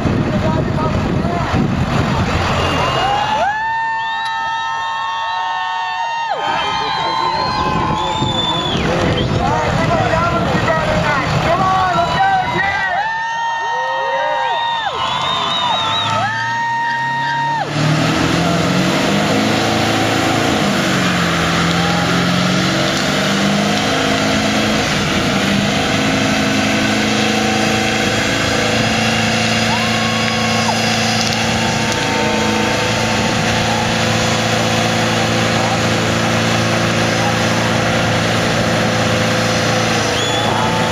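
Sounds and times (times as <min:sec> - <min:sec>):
pickup engine revving: 0:00.0 - 0:04.5, 0:06.4 - 0:12.8, 0:14.9 - 0:40.9
tyres spinning on pavement: 0:00.0 - 0:40.9
horn-like tone: 0:31.6 - 0:33.8.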